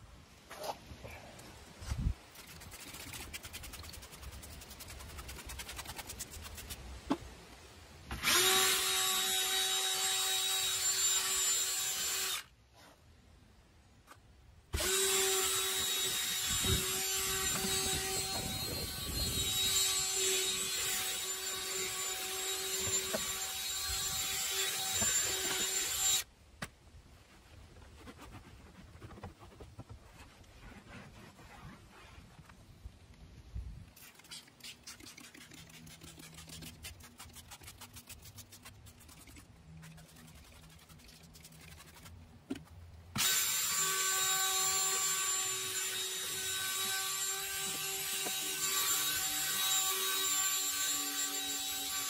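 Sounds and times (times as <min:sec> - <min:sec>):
cordless drill whirring: 0:08.1 - 0:12.5, 0:14.8 - 0:26.2, 0:43.2 - 0:50.4
brush scrubbing door panel: 0:27.8 - 0:32.3.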